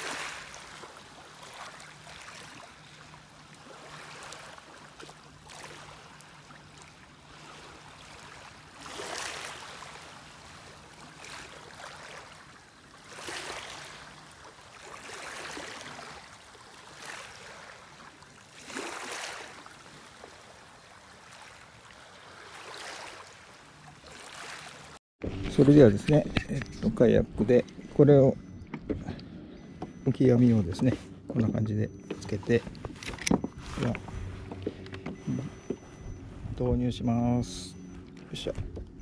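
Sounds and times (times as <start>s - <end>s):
small waves lapping at shore: 0.0s - 28.4s.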